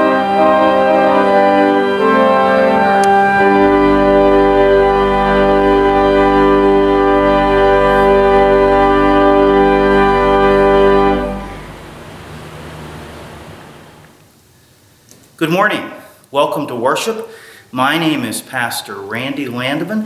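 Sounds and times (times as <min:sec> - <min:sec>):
church organ chord: 0:00.0 - 0:14.1
faint hiss: 0:11.1 - 0:20.0.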